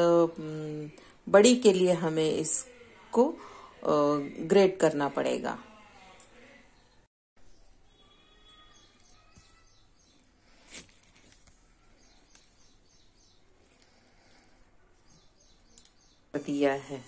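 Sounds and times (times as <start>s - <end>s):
faint chirps: 6.7s - 16.4s.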